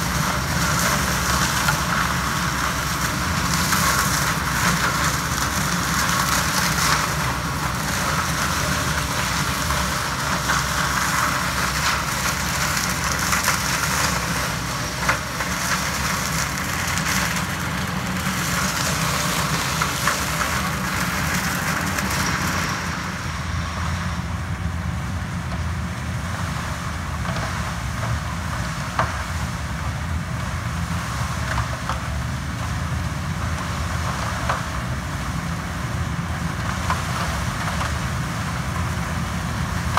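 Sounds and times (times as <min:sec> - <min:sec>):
dense high hiss: 0:00.0 - 0:31.5
engine drone: 0:00.0 - 0:39.9.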